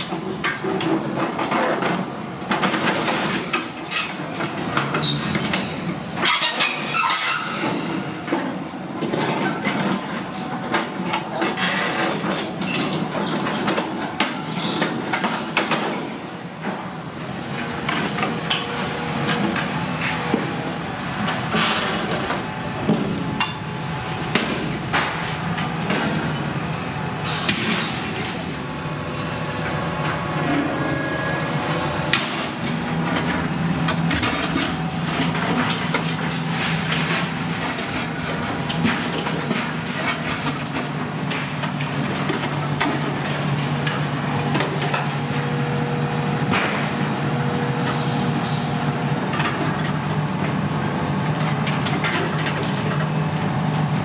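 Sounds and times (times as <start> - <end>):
excavator diesel engine running: 7.8 - 54.0
steel crunching and clanking: 14.6 - 41.5.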